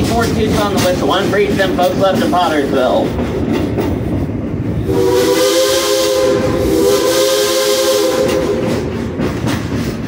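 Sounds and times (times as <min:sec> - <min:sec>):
running train rumble: 0:00.0 - 0:10.0
steam locomotive whistle: 0:04.8 - 0:09.1
steam hissing: 0:04.9 - 0:10.0.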